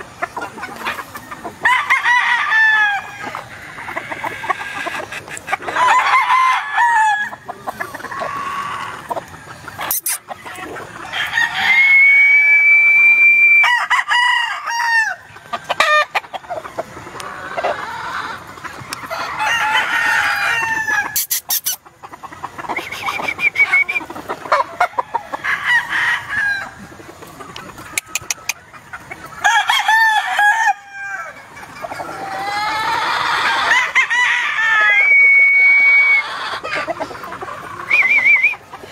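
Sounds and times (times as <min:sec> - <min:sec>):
chickens clucking: 0:00.0 - 0:38.9
rooster crowing: 0:01.6 - 0:04.1, 0:05.8 - 0:07.4, 0:11.1 - 0:15.2, 0:19.1 - 0:21.4, 0:29.4 - 0:31.4.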